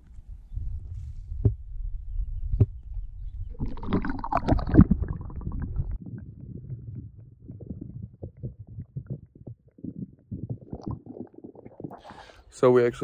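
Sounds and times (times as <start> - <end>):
underwater rumbling and gurgling: 0.4 - 12.3
water sloshing and bubbling: 2.7 - 12.4.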